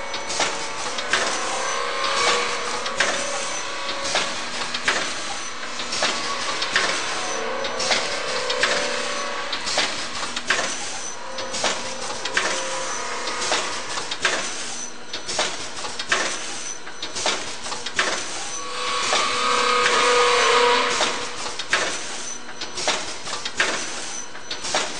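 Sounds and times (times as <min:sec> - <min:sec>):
packaging machine clacking: 0:00.1 - 0:12.7.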